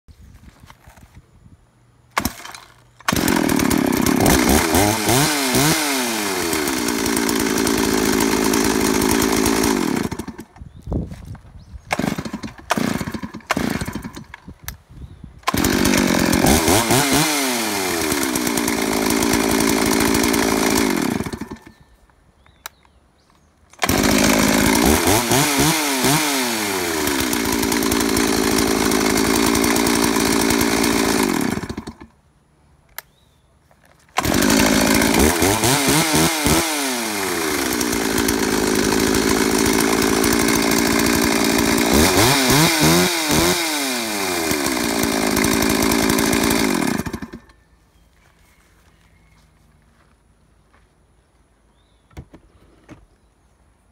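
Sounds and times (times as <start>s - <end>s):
chainsaw starting and revving: 2.1s - 10.6s, 11.9s - 14.4s, 15.4s - 22.0s, 23.8s - 32.2s, 34.1s - 47.7s.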